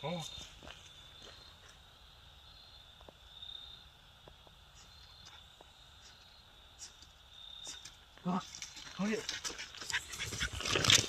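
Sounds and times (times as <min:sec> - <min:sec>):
high-pitched insect chirping: 0:00.0 - 0:08.4.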